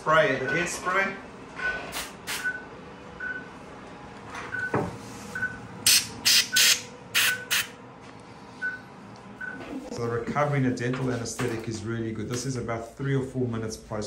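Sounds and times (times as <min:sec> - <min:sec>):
short high electronic beep: 0:06.3 - 0:07.7.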